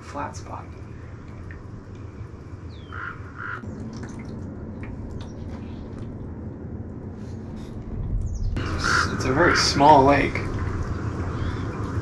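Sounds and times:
bird calling: 2.6s - 3.6s, 8.3s - 9.8s.

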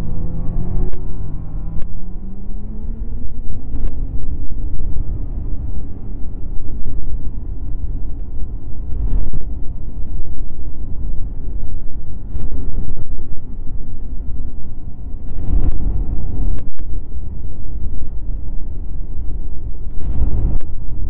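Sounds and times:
snowmobile engine rumble: 0.0s - 21.0s.

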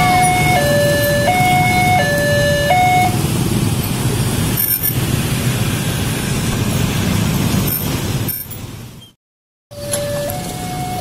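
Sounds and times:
level crossing alarm two tones: 0.0s - 3.1s, 9.7s - 11.0s
motorcycles and road traffic: 0.0s - 11.0s.

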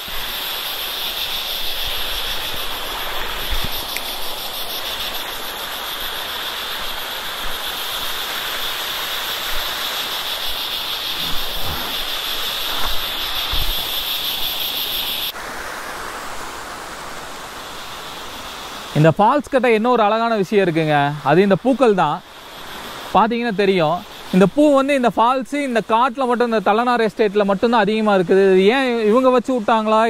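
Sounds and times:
high-pitched insect drone: 0.0s - 15.3s
stream water rushing over rocks: 0.0s - 30.0s.

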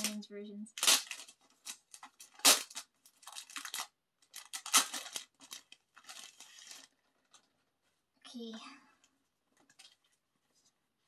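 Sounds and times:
wrapping crinkling and tearing: 0.0s - 7.7s.

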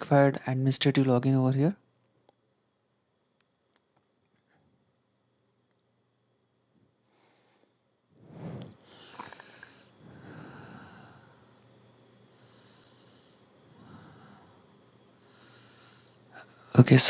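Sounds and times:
faint breaths and sniffs: 7.0s - 16.7s.

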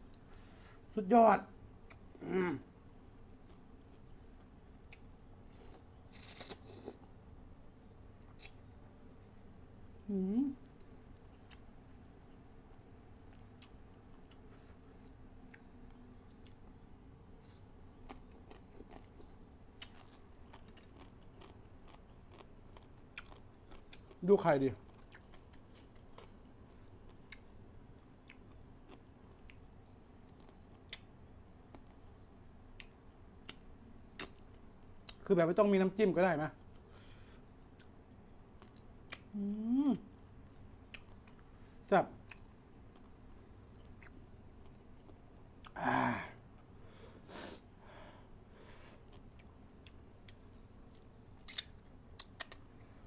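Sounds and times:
wet mouth clicks while eating: 8.3s - 8.6s, 50.2s - 52.7s
man sighing: 45.8s - 46.4s.

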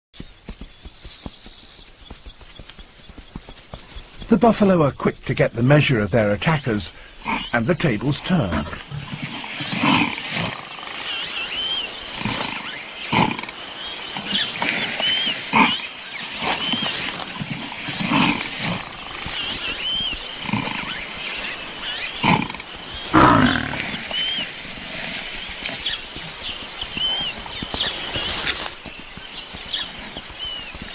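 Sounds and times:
lions snarling and growling: 7.2s - 30.9s.

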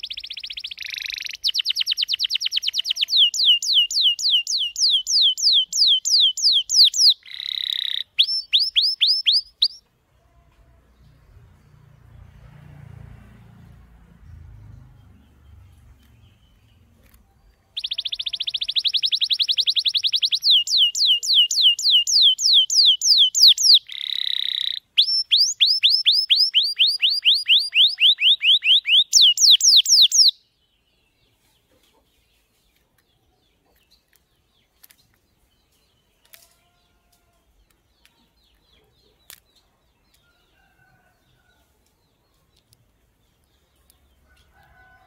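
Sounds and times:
canary singing: 0.0s - 9.9s, 14.7s - 30.6s.

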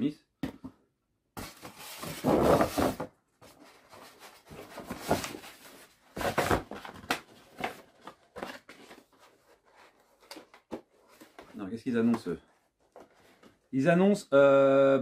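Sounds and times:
cardboard box rustling and scraping: 1.4s - 11.5s.

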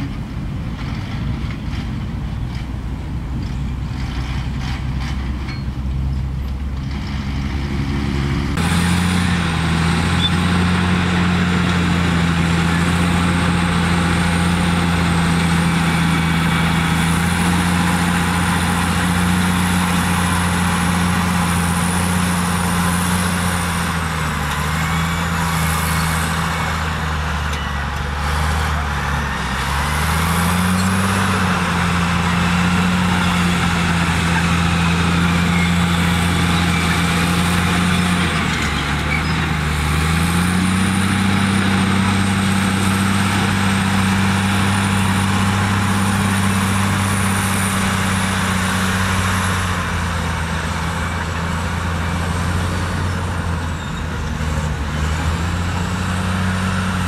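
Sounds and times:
bulldozer diesel engine: 0.0s - 57.0s
dump truck diesel engine: 0.0s - 57.0s.

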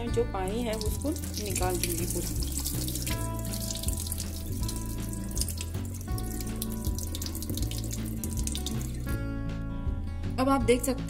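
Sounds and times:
light background music: 0.0s - 11.0s
water splashing into a sink: 0.5s - 9.2s.

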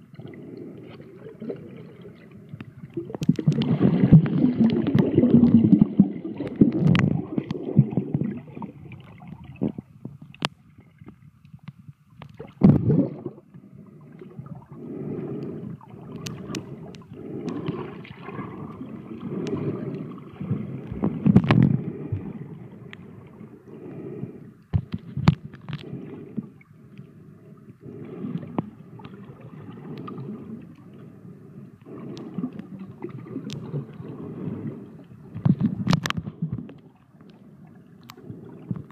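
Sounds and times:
underwater gurgling and bubbling: 0.0s - 38.9s.

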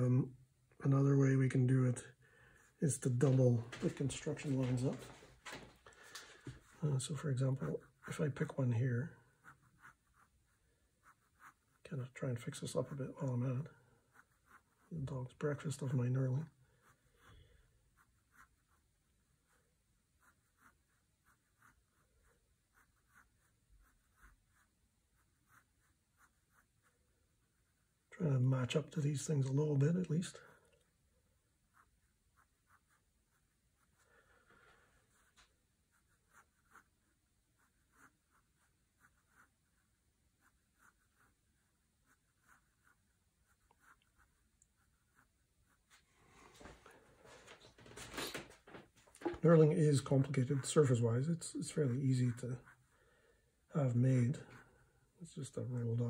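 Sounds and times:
pencil scratching on paper: 6.1s - 28.0s, 31.4s - 46.1s, 49.2s - 56.0s.

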